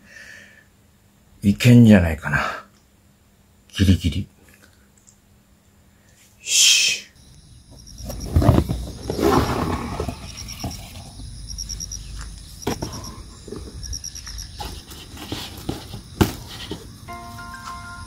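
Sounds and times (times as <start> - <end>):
plastic board rustling: 8.0 - 11.1, 12.7 - 17.0.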